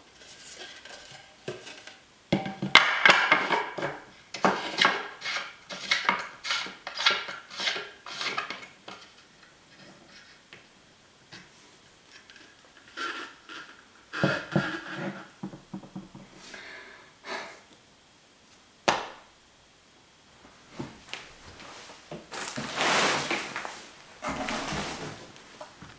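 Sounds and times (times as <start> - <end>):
knocks and thuds of handling: 15.4 - 16.4
loud rustle near microphone: 21.4 - 25.6.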